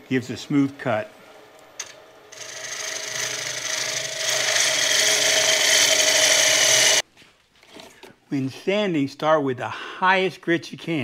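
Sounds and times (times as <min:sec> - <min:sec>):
lathe hum: 0:00.7 - 0:07.0
gouge cutting wood on a lathe: 0:02.3 - 0:07.0.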